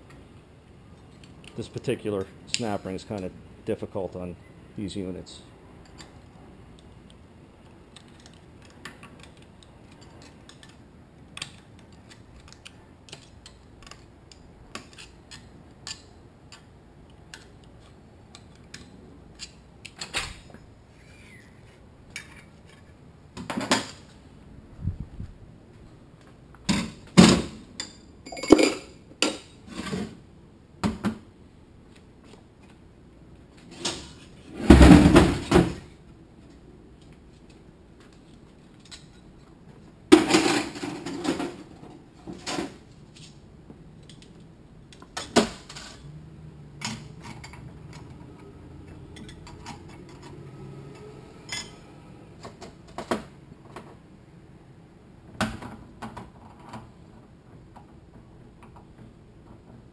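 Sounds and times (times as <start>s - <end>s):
metal parts and tools clanking: 38.2s - 39.5s, 45.2s - 46.1s, 46.8s - 51.9s.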